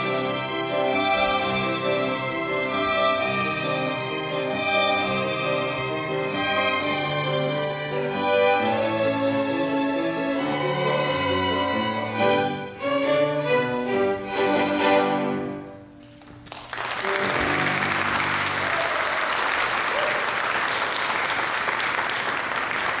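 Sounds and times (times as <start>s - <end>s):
violins playing: 0.0s - 16.2s, 17.0s - 18.7s
audience applauding: 16.1s - 23.0s.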